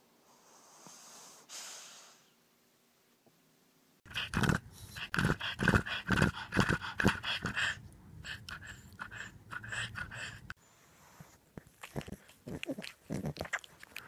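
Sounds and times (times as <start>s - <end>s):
dog panting fast: 4.1s - 10.6s.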